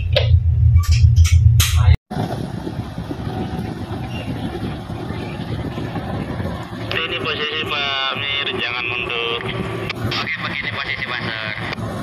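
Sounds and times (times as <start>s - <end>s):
diesel engine throbbing: 0.0s - 12.0s
wind rushing: 1.8s - 10.3s
churning water: 2.1s - 12.0s.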